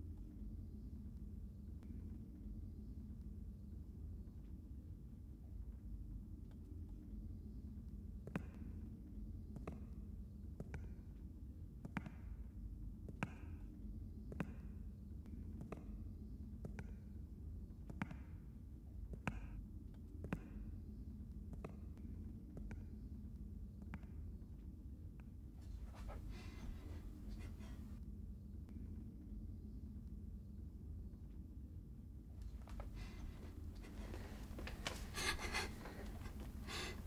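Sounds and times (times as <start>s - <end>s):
low steady hum: 25.4s - 37.0s
slow footsteps: 25.6s - 27.9s, 32.4s - 37.0s.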